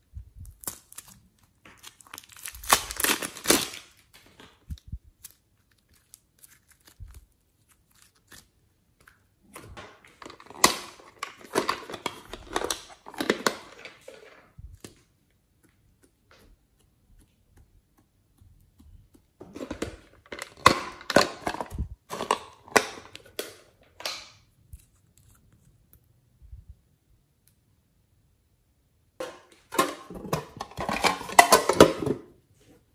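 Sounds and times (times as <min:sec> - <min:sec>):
hands squishing slime and clay: 0:00.0 - 0:09.6, 0:14.7 - 0:22.0.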